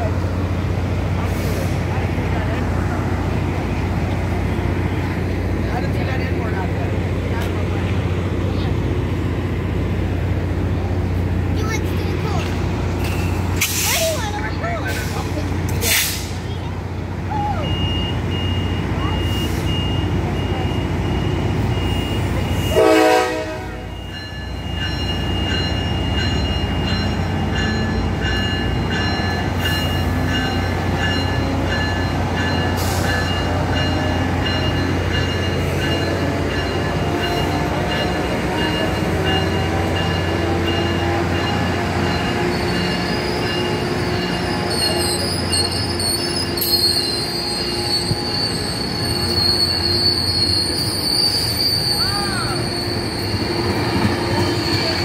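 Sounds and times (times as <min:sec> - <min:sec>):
steady low train hum: 0:00.0 - 0:55.0
steel wheels squealing on rails: 0:11.6 - 0:55.0.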